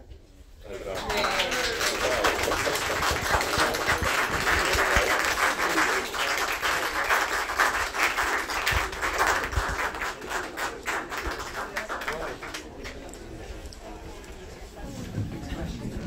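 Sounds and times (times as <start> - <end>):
audience applauding: 0.7 - 13.1.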